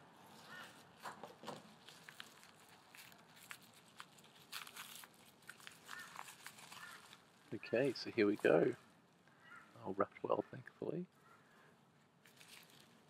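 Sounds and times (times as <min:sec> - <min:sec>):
paper crinkling and tearing: 0:00.2 - 0:08.8, 0:12.2 - 0:13.0.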